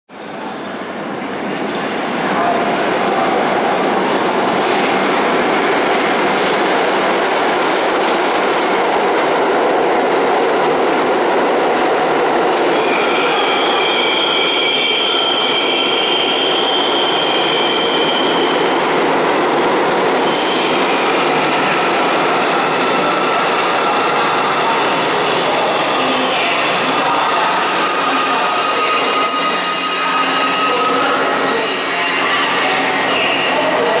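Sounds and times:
subway train wheels rumbling: 0.1 - 34.0
high-pitched wheel squeal: 12.7 - 18.6, 27.6 - 32.3.

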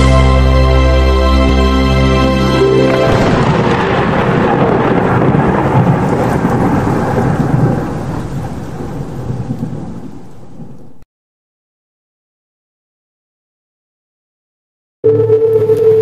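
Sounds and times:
thunder-like rumbling: 2.9 - 11.0.

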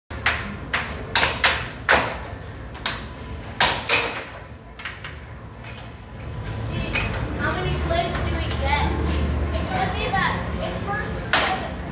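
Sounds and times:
air hockey puck clacking: 0.1 - 7.3, 11.2 - 11.7.

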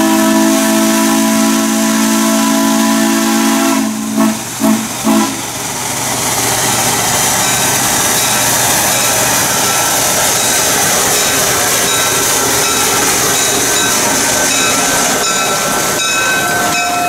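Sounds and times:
steam locomotive whistle: 0.0 - 5.4
locomotive hissing and running: 0.0 - 17.0.

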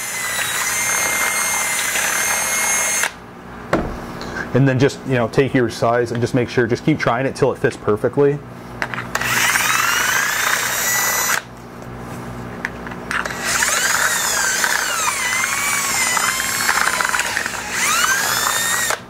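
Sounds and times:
cordless drill whine: 0.0 - 3.2, 9.1 - 11.5, 13.1 - 19.0.

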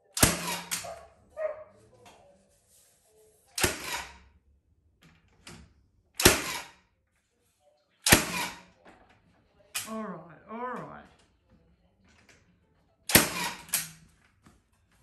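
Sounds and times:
nail gun firing into wood: 0.1 - 0.8, 3.6 - 4.2, 6.2 - 6.8, 8.0 - 8.7, 13.1 - 13.9.

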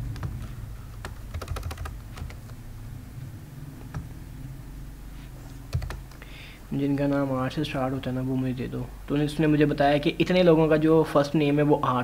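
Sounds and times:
computer keyboard typing: 0.0 - 2.6, 5.7 - 6.2
steady low hum: 0.0 - 12.0.

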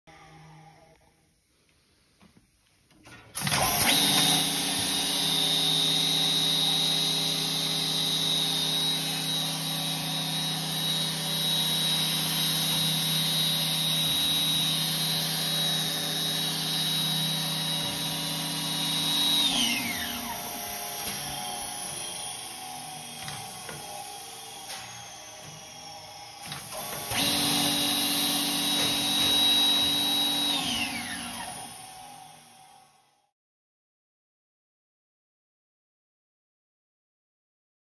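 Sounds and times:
milling machine motor whine: 3.4 - 32.9.

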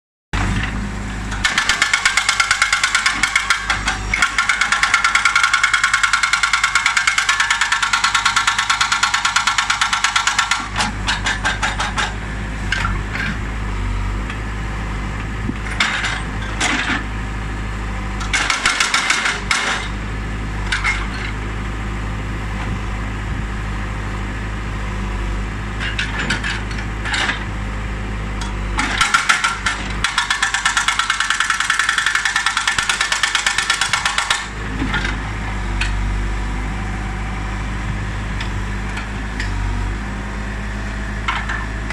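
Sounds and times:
backhoe engine running: 0.4 - 41.9
hydraulic breaker hammering rock: 1.3 - 12.2, 18.2 - 20.0, 28.8 - 35.1.

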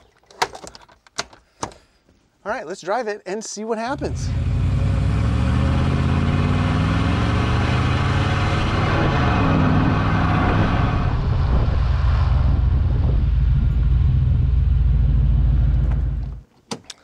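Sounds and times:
truck engine and exhaust accelerating: 4.0 - 16.4.

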